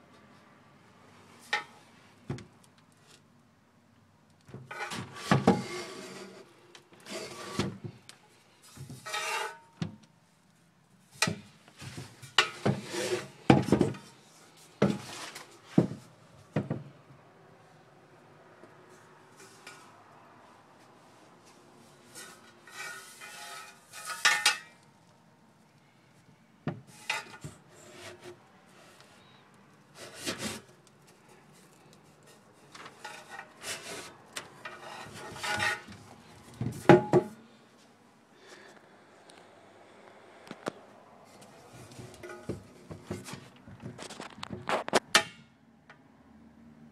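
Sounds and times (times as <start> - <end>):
metal pipe scraping on table: 4.7 - 7.7, 8.8 - 9.7, 12.4 - 13.4, 22.1 - 24.8, 26.9 - 29.3, 30.0 - 30.7, 33.0 - 36.1, 41.7 - 43.3.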